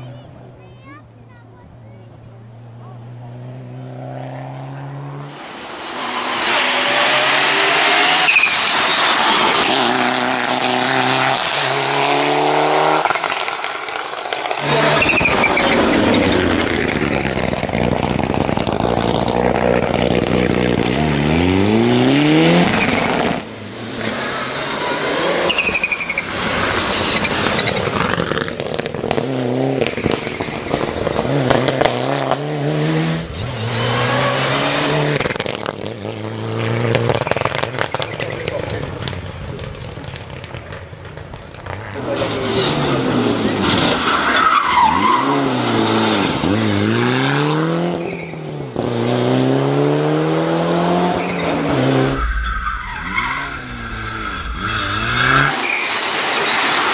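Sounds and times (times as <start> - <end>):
car engine revving hard: 3.4 - 13.2, 14.6 - 25.5, 26.3 - 38.2, 44.7 - 52.2, 53.0 - 56.3
tyre squeal: 5.6 - 10.0, 14.4 - 17.4, 24.7 - 28.2, 47.9 - 48.6, 51.1 - 56.9.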